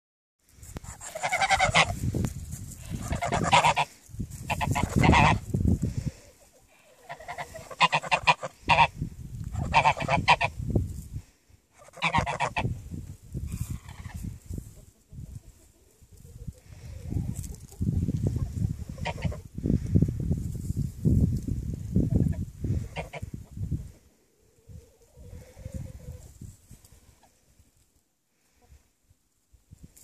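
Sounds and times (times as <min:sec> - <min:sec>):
geese honking: 0:00.8 - 0:02.0, 0:02.8 - 0:05.5, 0:06.7 - 0:10.6, 0:11.8 - 0:12.7, 0:22.9 - 0:23.3.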